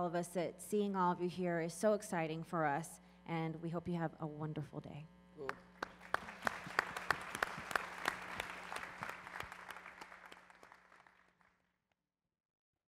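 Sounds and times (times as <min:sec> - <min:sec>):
sharp nearer claps: 0:05.4 - 0:11.1
audience applauding: 0:05.4 - 0:11.3.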